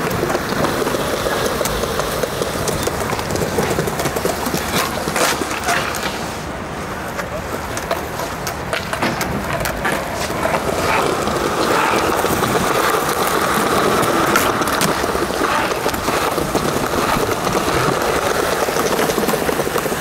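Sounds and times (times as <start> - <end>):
skateboard clicks and knocks: 0.0 - 20.0
skateboard wheels rolling on concrete: 0.0 - 20.0.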